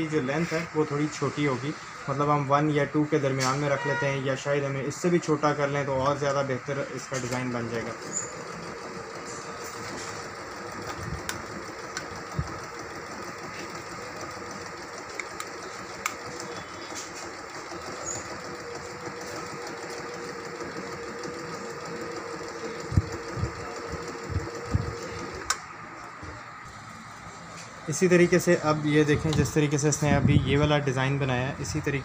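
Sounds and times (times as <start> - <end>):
sewing machine running: 5.5 - 25.7.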